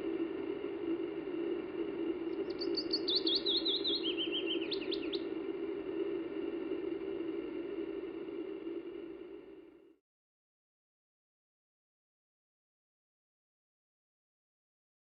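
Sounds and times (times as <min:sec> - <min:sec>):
steady low hum: 0:00.0 - 0:10.0
songbird singing: 0:02.3 - 0:05.4.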